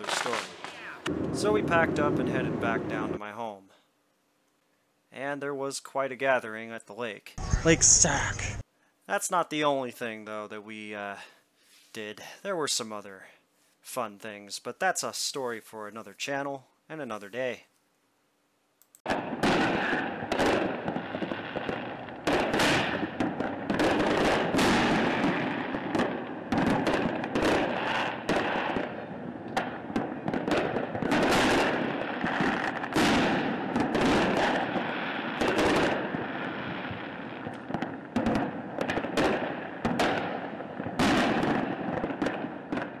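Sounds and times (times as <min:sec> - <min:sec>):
firework shells bursting with bangs: 0:00.0 - 0:02.7, 0:19.0 - 0:43.0
fireworks crackling: 0:00.0 - 0:03.2, 0:07.4 - 0:08.6, 0:19.0 - 0:43.0.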